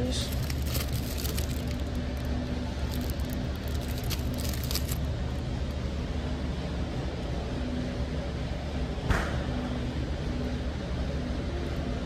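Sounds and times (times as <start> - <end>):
store background hum: 0.0 - 12.0.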